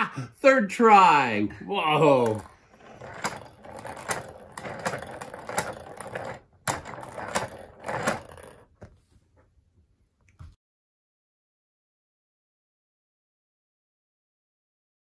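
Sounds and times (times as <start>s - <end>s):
wooden gears clicking: 2.0s - 8.9s.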